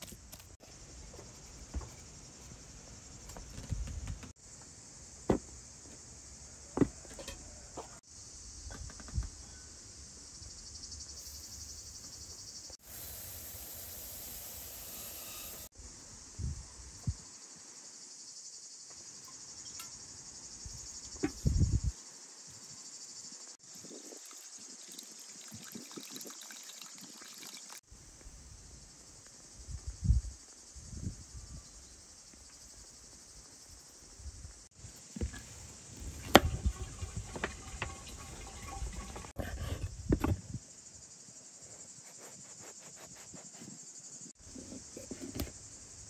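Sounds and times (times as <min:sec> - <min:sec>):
insects chirring: 0:00.0 - 0:46.0
knocks and taps of bowls: 0:36.4 - 0:39.3.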